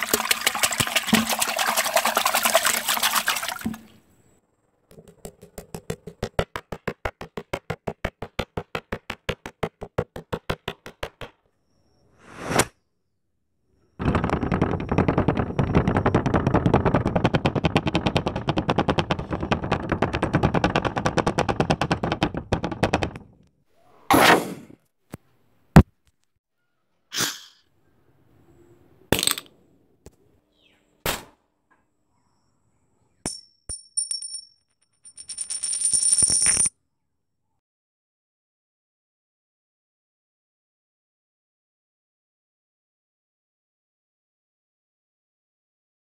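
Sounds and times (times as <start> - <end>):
swish: 12.2 - 12.7.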